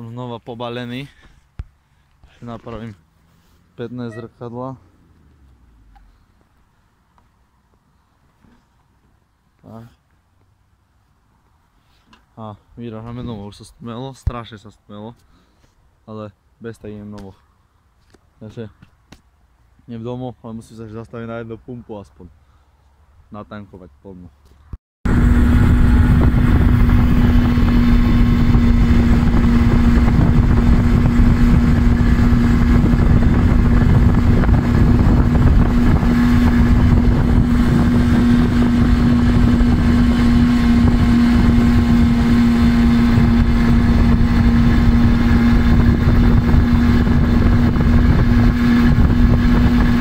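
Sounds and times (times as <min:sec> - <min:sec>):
moped engine running: 0:25.1 - 0:50.0.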